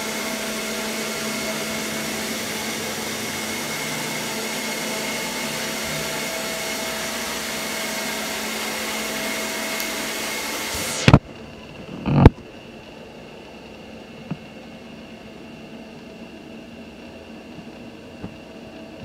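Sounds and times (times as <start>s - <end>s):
robot vacuum whirring: 0.0s - 11.2s
faint whine: 0.0s - 19.0s.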